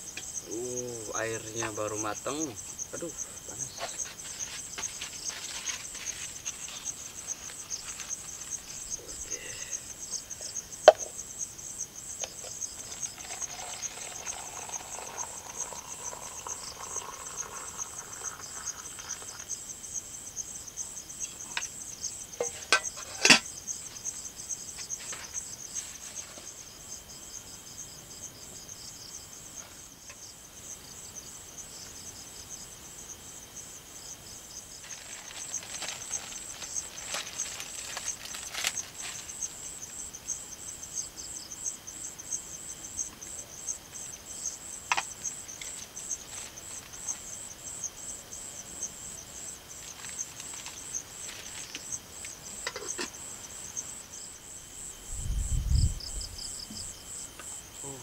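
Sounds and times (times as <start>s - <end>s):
crickets chirping: 0.0s - 58.0s
dishes and kettle clinking: 22.4s - 23.5s.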